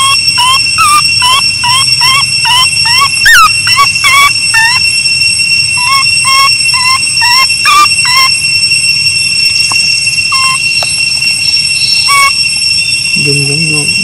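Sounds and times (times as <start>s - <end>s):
baby monkey whimpering coos: 0.0s - 4.8s, 5.8s - 8.3s, 10.3s - 10.6s, 12.1s - 12.3s
high-pitched drone: 0.0s - 14.0s.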